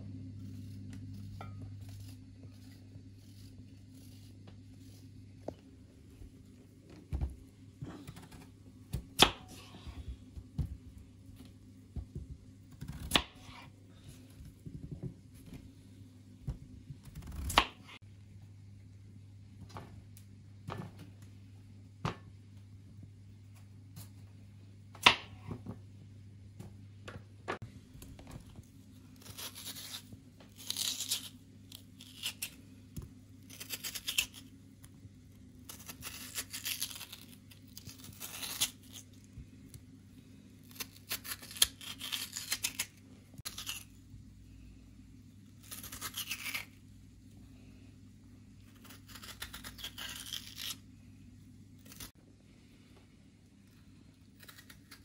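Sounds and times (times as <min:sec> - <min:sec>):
faint low hum: 0:00.0 - 0:55.0
knife scraping potato: 0:00.2 - 0:05.5, 0:29.2 - 0:32.7, 0:33.4 - 0:34.6, 0:35.6 - 0:39.3, 0:40.6 - 0:44.0, 0:45.6 - 0:46.8, 0:48.7 - 0:50.8.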